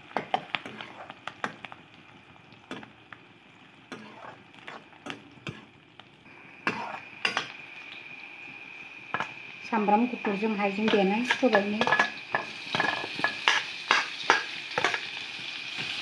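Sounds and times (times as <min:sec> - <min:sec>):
onions sizzling in oil: 0:00.0 - 0:16.0
metal ladle scraping wok: 0:03.9 - 0:05.6, 0:06.6 - 0:07.5.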